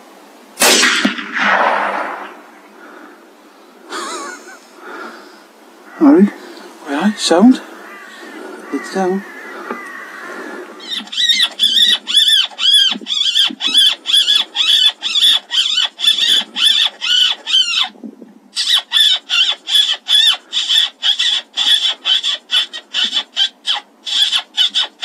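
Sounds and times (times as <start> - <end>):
shrill squealing animal calls: 5.9 - 25.0.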